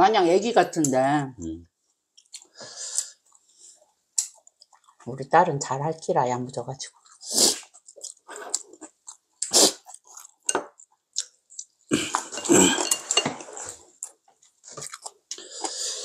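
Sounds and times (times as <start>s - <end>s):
person chewing: 2.1s - 3.5s, 4.1s - 5.0s, 6.9s - 16.0s.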